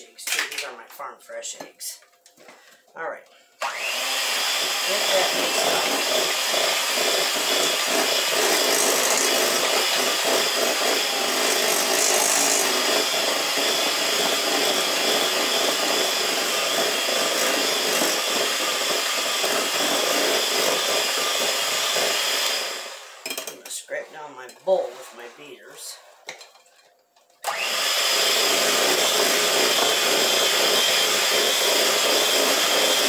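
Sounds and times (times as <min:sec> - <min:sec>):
electric mixer whipping batter: 0:03.6 - 0:23.2, 0:27.4 - 0:33.0.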